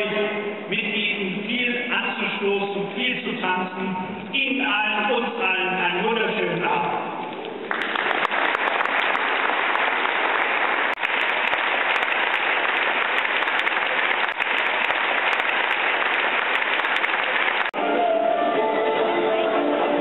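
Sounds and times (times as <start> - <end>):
person giving speech: 0.0 - 7.2
crowd applauding: 7.6 - 20.0.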